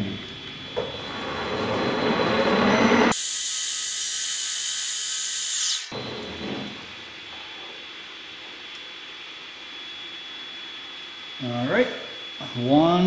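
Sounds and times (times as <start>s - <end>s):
metal lathe cutting hiss: 3.1s - 5.9s.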